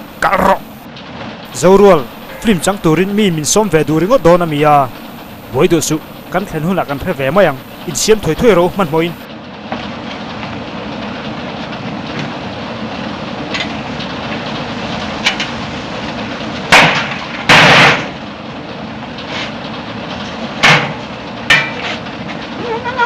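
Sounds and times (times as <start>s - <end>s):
steady rushing noise: 0.0s - 9.7s.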